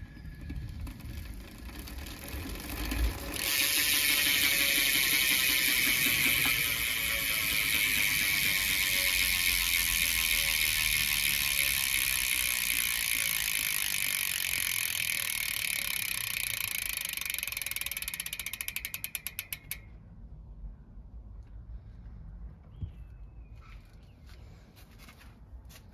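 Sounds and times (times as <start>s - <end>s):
bicycle freewheel ratchet clicking: 0.0s - 19.9s.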